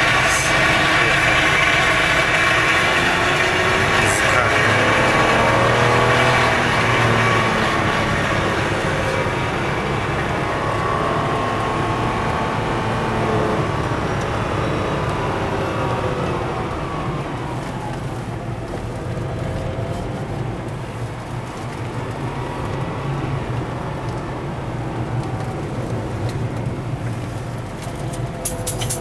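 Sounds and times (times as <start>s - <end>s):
car engine revving: 0.0s - 29.0s
road noise: 0.0s - 29.0s.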